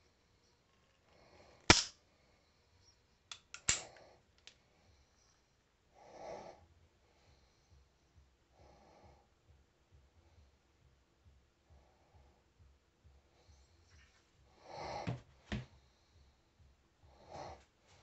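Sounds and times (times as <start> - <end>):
revolver action metal clicks: 1.7 - 1.9, 3.3 - 4.6.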